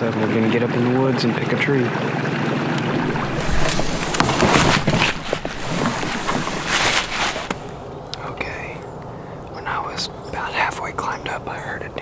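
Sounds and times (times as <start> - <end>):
leaves and branches rustling: 2.9 - 8.5.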